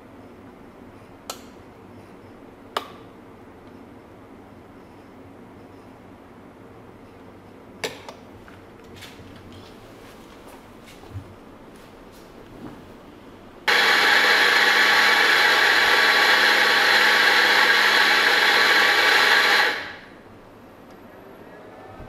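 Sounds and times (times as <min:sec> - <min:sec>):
coffee grinder whining: 0:13.7 - 0:20.1.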